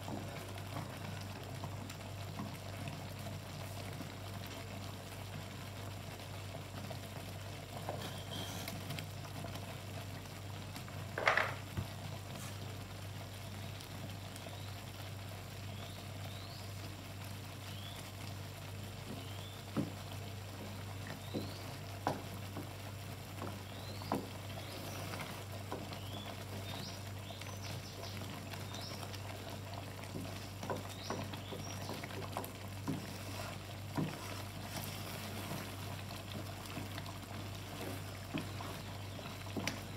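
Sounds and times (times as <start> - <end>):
wooden spatula stirring: 0.0 - 4.9, 6.8 - 9.7, 18.0 - 39.9
cheese sauce simmering and bubbling: 0.0 - 39.9.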